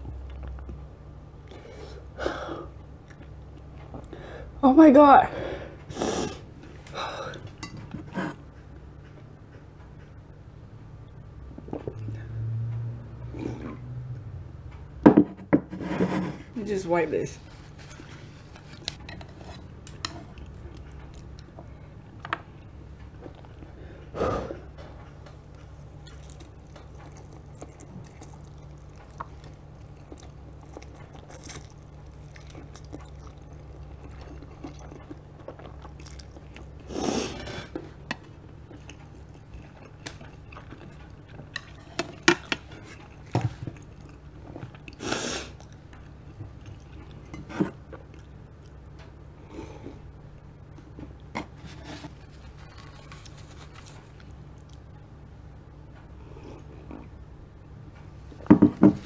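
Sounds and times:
low hum: 6.5s - 15.5s
person chewing and slurping noodles: 17.5s - 21.9s, 22.5s - 50.1s.

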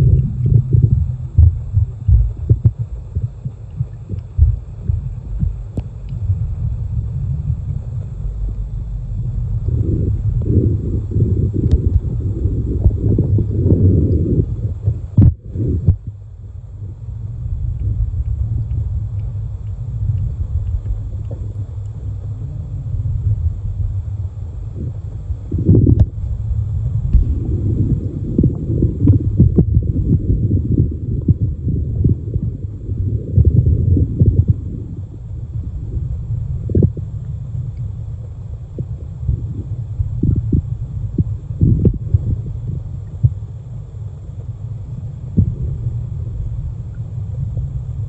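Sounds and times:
underwater thumps: 0.0s - 8.6s, 25.7s - 26.4s, 27.1s - 27.7s
muffled underwater rumbling: 0.0s - 48.0s.

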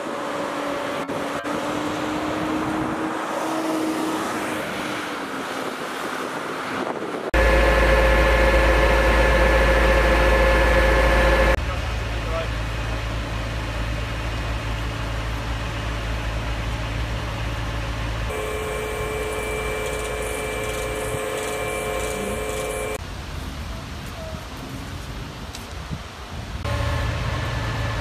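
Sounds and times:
mechanical whine: 7.4s - 11.6s, 18.3s - 23.0s
truck engine running: 7.4s - 23.0s.

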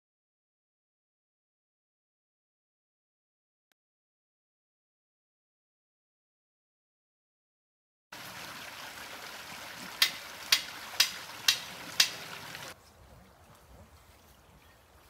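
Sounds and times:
stream water rushing: 8.2s - 12.8s.

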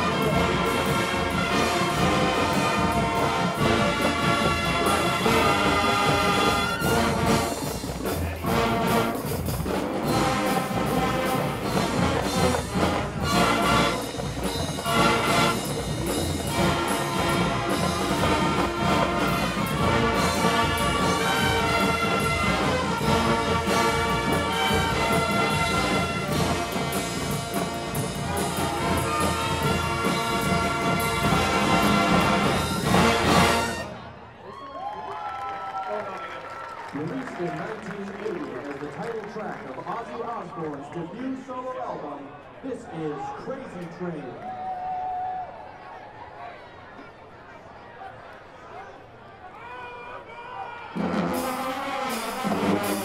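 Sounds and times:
marching drums and percussion: 0.0s - 33.9s, 51.0s - 53.0s
marching band brass: 0.0s - 34.4s, 50.8s - 53.0s.

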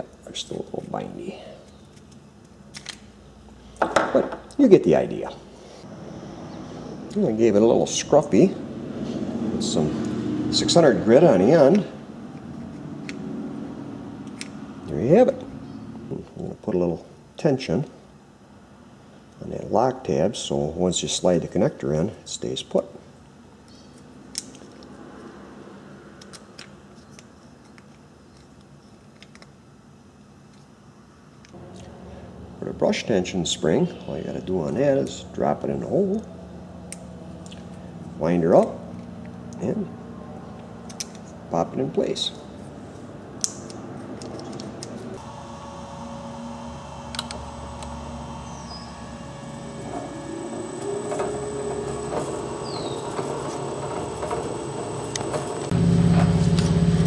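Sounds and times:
steady high whine: 44.8s - 57.0s
drill press motor running: 45.2s - 57.0s.

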